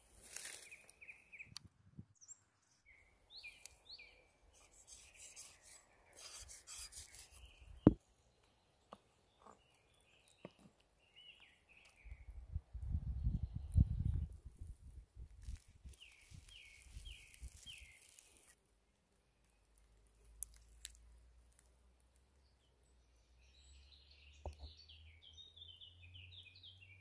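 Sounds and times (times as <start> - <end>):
wooden sticks scraping: 4.6 - 7.5.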